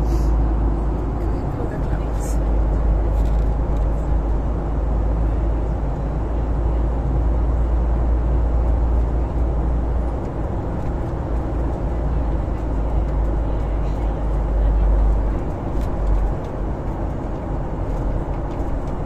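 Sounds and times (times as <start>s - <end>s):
deep constant rumble: 0.0s - 19.0s
jet cabin engine and airflow noise: 0.0s - 19.0s.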